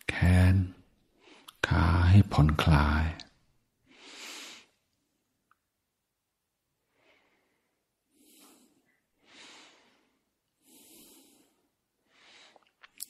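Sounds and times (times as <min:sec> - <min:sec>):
soft breaths close to microphone: 0:03.8 - 0:04.8, 0:06.8 - 0:12.7.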